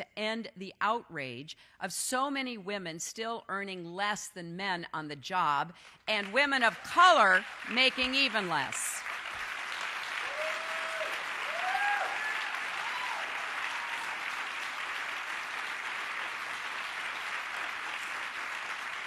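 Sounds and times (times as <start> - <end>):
audience applauding: 6.2 - 19.0
people whooping: 10.2 - 14.4.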